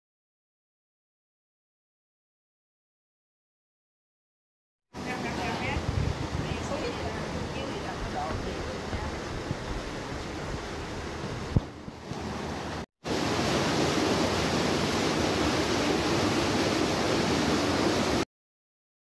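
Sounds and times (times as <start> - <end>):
stream water rushing over rocks: 5.0 - 18.2.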